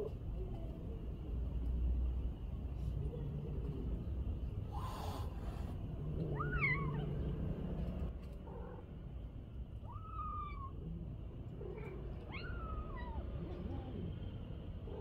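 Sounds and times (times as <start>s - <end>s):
cat meowing: 11.8s - 13.2s.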